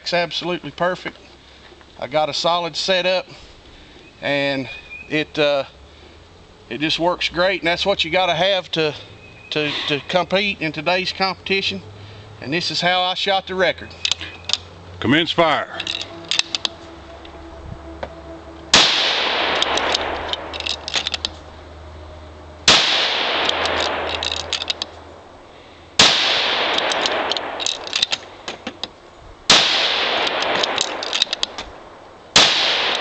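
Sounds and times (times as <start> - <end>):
metallic bolt clicks: 14.0 - 14.7, 15.8 - 17.4, 19.6 - 21.4, 23.3 - 25.0, 26.6 - 29.0, 30.2 - 31.8
rifle shots ringing: 18.7 - 21.3, 22.6 - 24.9, 26.0 - 28.3, 29.5 - 33.0.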